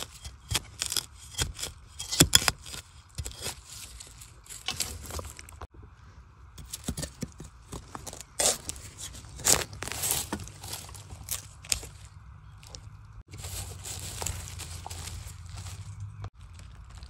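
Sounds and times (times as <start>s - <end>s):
metal blade digging soil: 0.0s - 5.7s, 6.6s - 16.3s.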